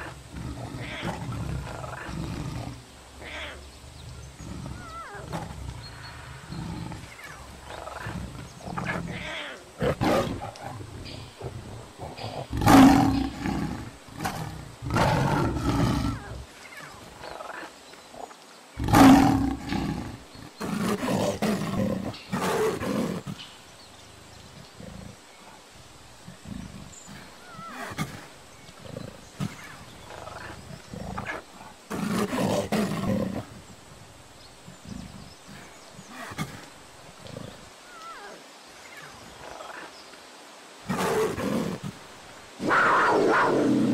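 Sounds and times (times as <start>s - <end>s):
big cats roaring: 0.0s - 16.5s, 18.8s - 23.4s, 26.2s - 33.6s, 42.6s - 43.9s.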